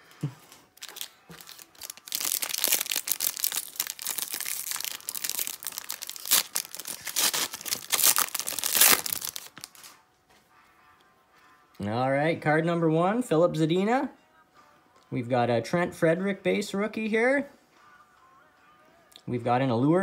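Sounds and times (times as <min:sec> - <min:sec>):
foil wrapper crinkling and tearing: 0:00.8 - 0:10.0.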